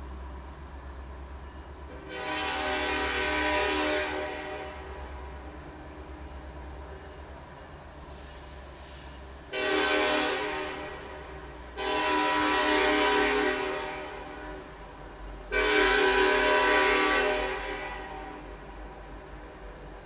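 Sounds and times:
locomotive air horn blasts: 1.9s - 5.1s, 8.8s - 14.8s, 15.5s - 18.8s.

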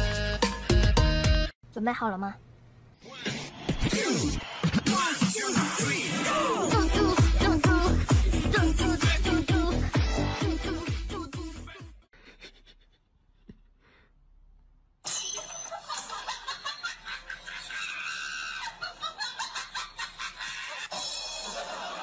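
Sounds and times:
person laughing: 12.2s - 13.5s.

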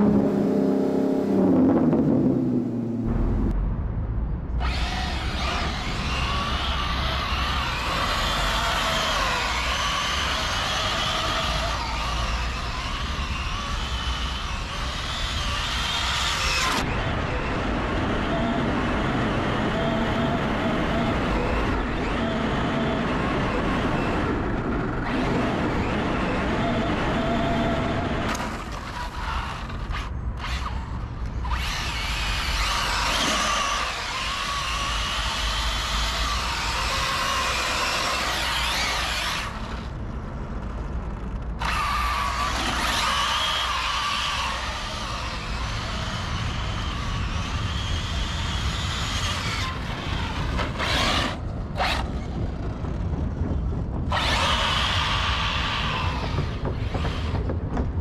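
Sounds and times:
electric motor whining: 4.6s - 17.6s, 18.2s - 40.0s, 41.6s - 52.3s, 54.1s - 57.4s
wind rumbling on microphone: 44.7s - 58.0s.

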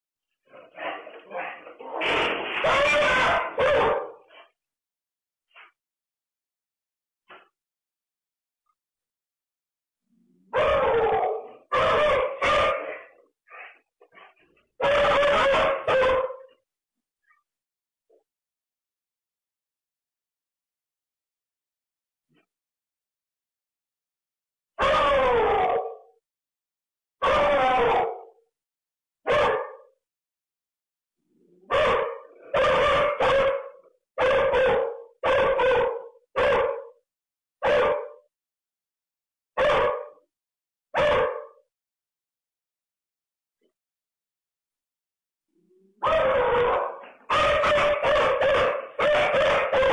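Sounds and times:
dog yelping and howling: 2.6s - 4.2s, 10.5s - 13.2s, 14.8s - 16.4s, 24.8s - 26.1s, 27.2s - 28.3s, 31.6s - 36.9s, 45.8s - 49.9s.

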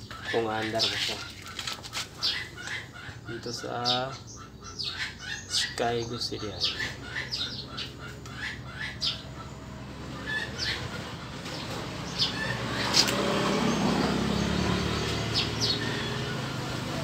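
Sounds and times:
birds chirping: 0.0s - 17.0s
motorcycle engine running: 7.5s - 17.0s.

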